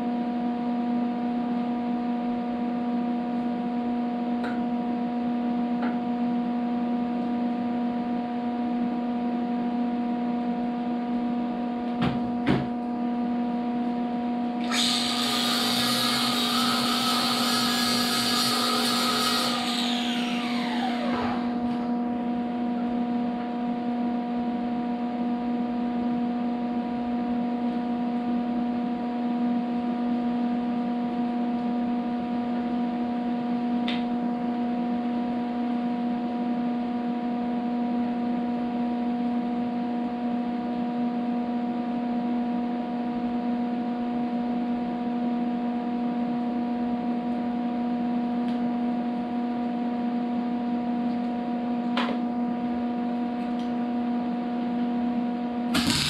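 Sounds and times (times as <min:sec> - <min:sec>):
steady hum: 0:12.5 - 0:24.1, 0:55.4 - 0:56.0.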